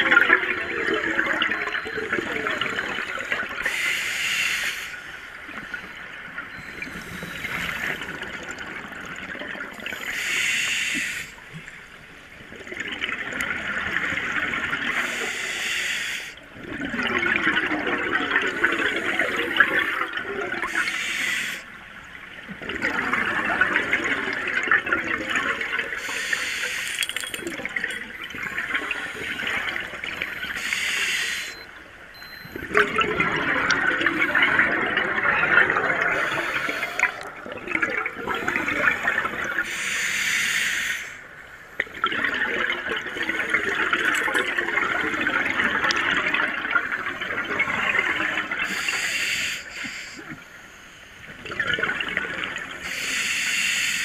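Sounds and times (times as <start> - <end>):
diver breathing through regulator: 15.0 - 16.4, 20.7 - 21.7, 30.6 - 31.6, 36.1 - 37.3, 38.4 - 41.2, 48.6 - 50.3, 52.8 - 54.0.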